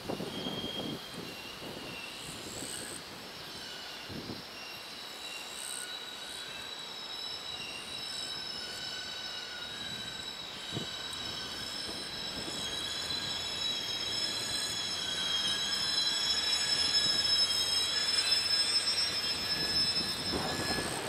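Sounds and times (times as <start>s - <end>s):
train wheels squealing on tracks: 0.0s - 21.0s.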